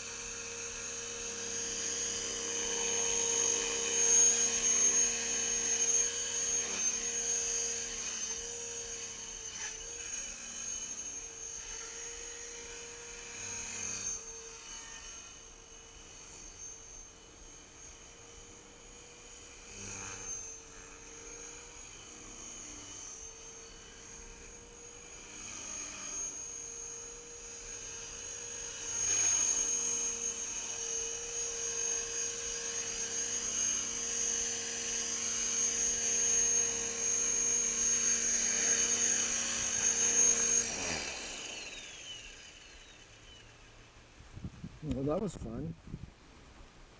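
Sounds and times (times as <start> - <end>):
helicopter motor whine: 0.0 - 45.9
rotor hum: 24.5 - 46.1.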